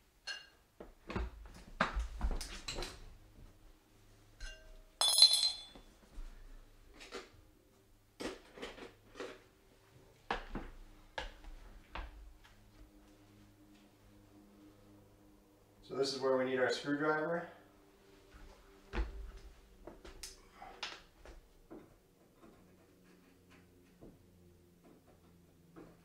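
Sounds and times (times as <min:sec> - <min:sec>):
sharp ringing clink: 0:04.4 - 0:05.8.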